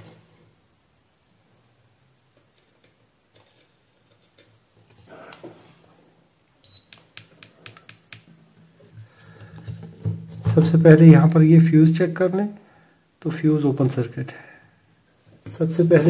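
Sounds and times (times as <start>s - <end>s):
multimeter beep: 6.6s - 7.0s
test probes clicking and tapping: 6.8s - 8.3s.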